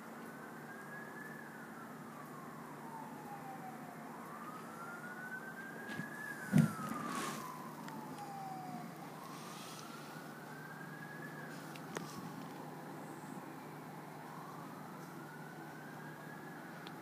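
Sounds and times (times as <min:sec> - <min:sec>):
fire truck siren wailing: 0:00.0 - 0:17.0
sharp thump: 0:05.9 - 0:07.1.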